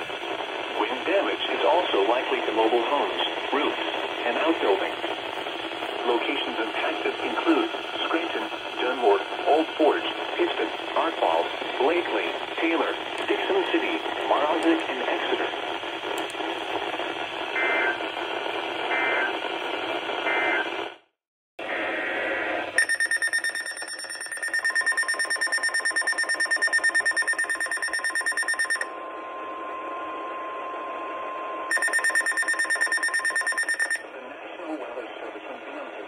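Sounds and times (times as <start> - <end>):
steady warning tone: 0.0 - 15.6, 21.6 - 35.9
radio broadcast hiss: 0.0 - 20.5, 34.1 - 36.0
data-tone bursts: 22.8 - 28.9, 31.7 - 34.0
rapid alarm beeping: 22.8 - 29.0, 31.5 - 34.1.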